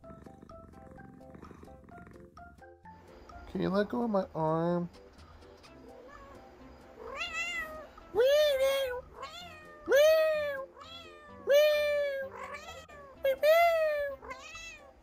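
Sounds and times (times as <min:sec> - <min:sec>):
cat meowing: 0:06.0 - 0:15.0.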